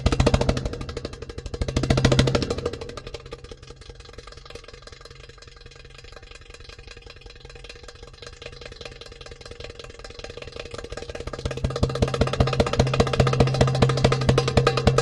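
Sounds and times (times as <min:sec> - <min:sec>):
drums: 0:00.0 - 0:03.3, 0:11.4 - 0:15.0
rapid percussion roll: 0:00.0 - 0:15.0.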